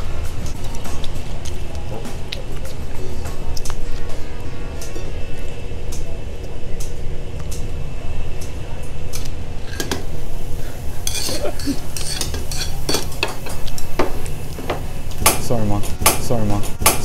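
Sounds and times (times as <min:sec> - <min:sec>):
metal utensil scraping a pan: 0:09.6 - 0:13.6.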